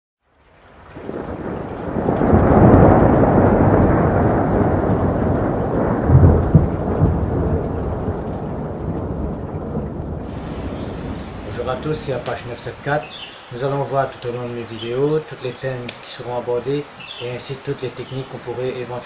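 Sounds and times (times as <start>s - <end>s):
rain: 0.2s - 19.0s
rolling thunder: 0.8s - 14.6s.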